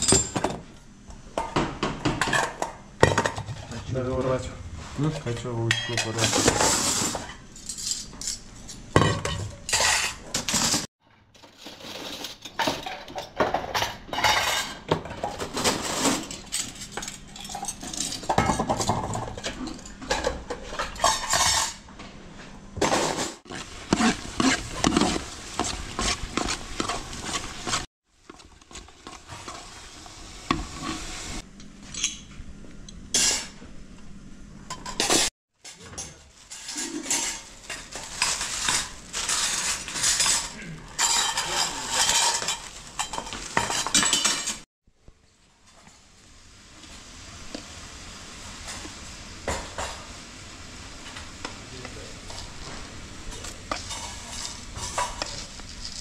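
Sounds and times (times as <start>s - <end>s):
dishes and utensils clattering: 0.0s - 0.7s, 5.3s - 21.9s, 34.7s - 44.7s, 53.3s - 56.0s.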